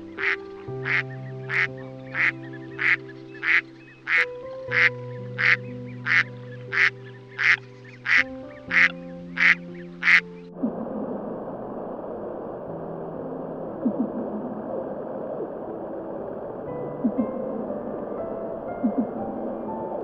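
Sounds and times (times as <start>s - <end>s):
soft background music: 0.0s - 20.0s
duck quacking: 0.2s - 10.2s
steady rushing noise: 6.7s - 20.0s.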